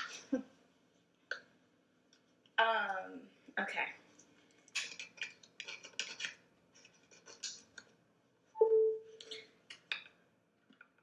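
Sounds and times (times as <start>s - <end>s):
short scratching and clicking noises: 4.7s - 7.9s.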